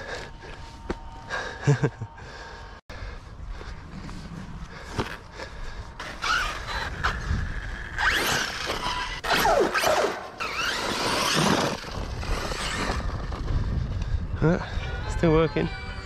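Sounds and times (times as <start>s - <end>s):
electric motor revving whine: 6.0s - 13.4s
rough scraping: 6.0s - 13.7s.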